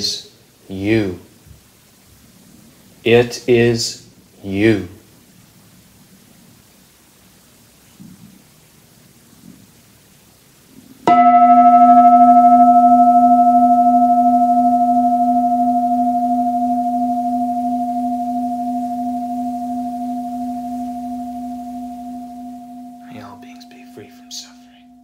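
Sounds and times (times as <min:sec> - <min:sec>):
singing bowl ringing: 0:11.1 - 0:25.0.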